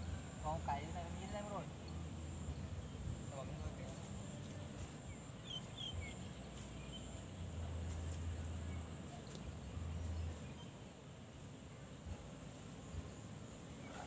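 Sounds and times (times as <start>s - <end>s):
bird chirps: 5.1s - 7.2s.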